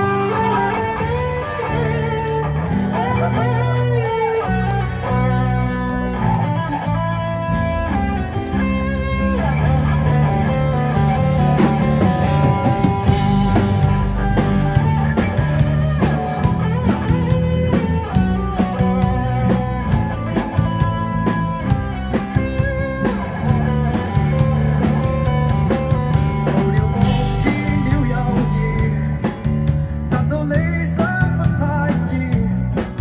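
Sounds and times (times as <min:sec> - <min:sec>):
live rock band playing: 0:00.0 - 0:33.0.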